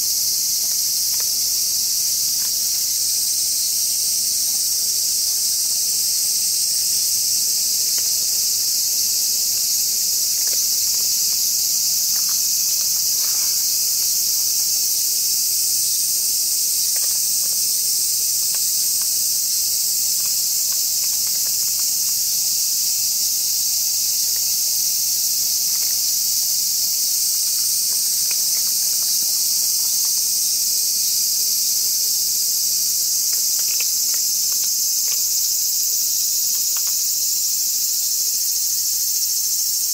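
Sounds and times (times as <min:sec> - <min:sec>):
high-pitched insect chorus: 0:00.0 - 0:39.9
faint small clicks: 0:33.3 - 0:35.2.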